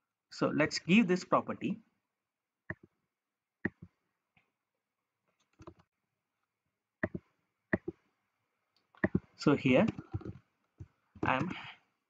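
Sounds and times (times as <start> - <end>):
computer mouse clicking: 3.6 - 3.9, 5.4 - 5.9, 7.0 - 8.0, 8.8 - 11.6.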